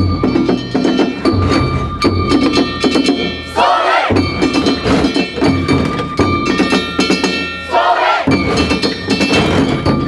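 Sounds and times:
drum beating: 0:00.0 - 0:10.0
group of voices shouting: 0:03.5 - 0:04.2, 0:07.7 - 0:08.3.

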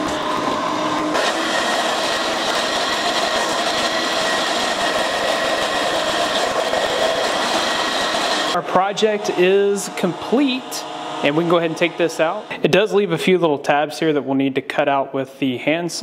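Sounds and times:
spindle whine: 0:00.0 - 0:13.1
shop vacuum rushing: 0:00.0 - 0:13.7
milling cutting noise: 0:01.0 - 0:13.0.

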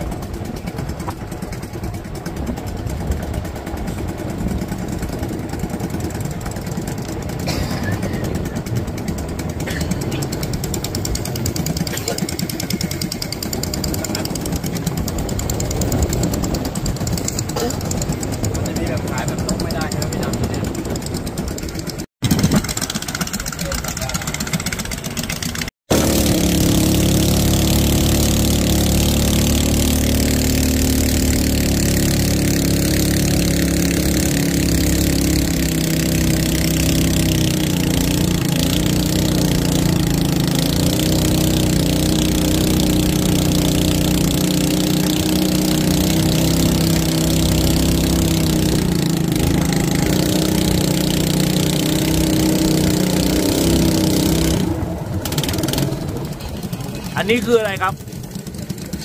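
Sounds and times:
boat engine running: 0:00.0 - 0:59.0
water and wind rushing: 0:44.8 - 0:58.1.

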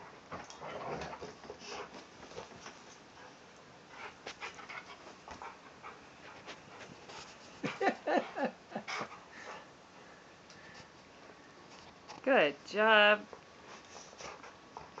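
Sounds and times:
dog panting and whining: 0:00.3 - 0:02.5, 0:03.2 - 0:09.7, 0:13.7 - 0:15.0.

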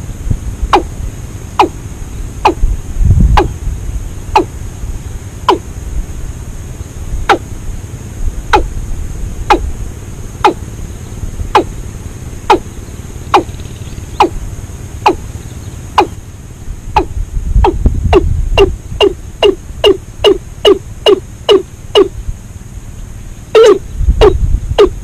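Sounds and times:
watercock calling: 0:00.7 - 0:00.9, 0:01.5 - 0:01.8, 0:02.4 - 0:02.7, 0:03.4 - 0:03.6, 0:04.3 - 0:04.5, 0:05.4 - 0:05.7, 0:07.2 - 0:07.5, 0:08.5 - 0:08.7, 0:09.5 - 0:09.7, 0:10.4 - 0:10.8, 0:11.5 - 0:16.2, 0:16.9 - 0:22.1, 0:23.5 - 0:25.0.

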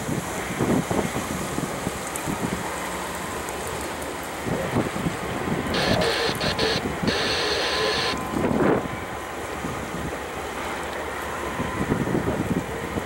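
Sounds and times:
steady hiss: 0:05.8 - 0:08.2.

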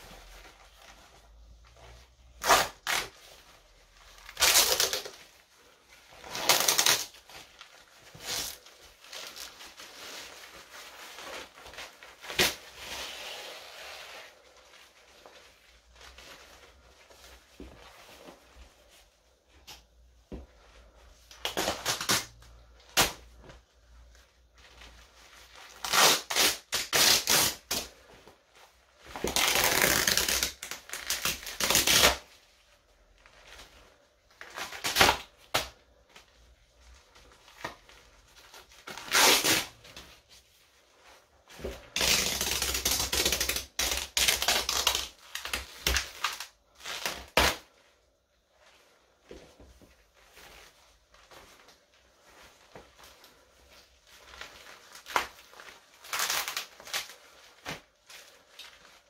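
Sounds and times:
fabric tearing: 0:02.3 - 0:03.2, 0:04.2 - 0:05.2, 0:06.1 - 0:07.3, 0:25.7 - 0:27.9, 0:29.2 - 0:32.3, 0:38.8 - 0:39.8, 0:41.9 - 0:47.7.

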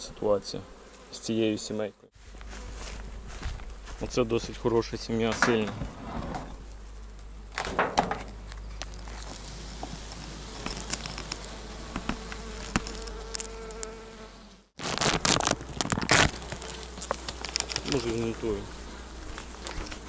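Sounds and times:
honeybees buzzing: 0:00.0 - 0:04.4, 0:06.5 - 0:20.0
hive lid knocks and rustling: 0:07.6 - 0:08.4
bee flying close humming: 0:08.2 - 0:20.0.

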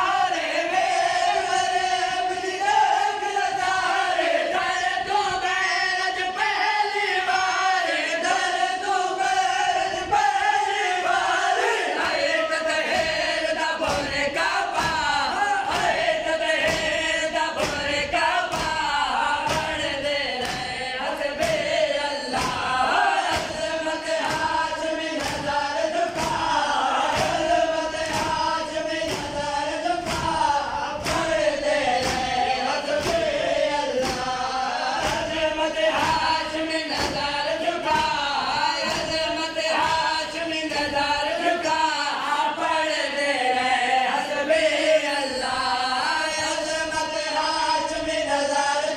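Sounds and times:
men chanting in chorus: 0:00.0 - 0:48.9
hands beating chests: 0:12.9 - 0:40.9.

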